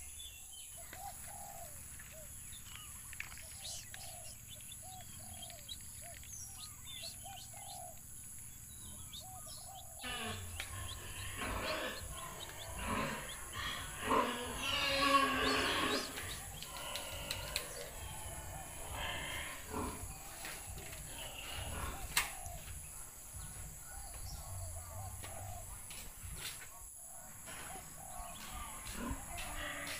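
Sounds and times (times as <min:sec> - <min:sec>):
short bird calls: 0:08.8 - 0:22.8.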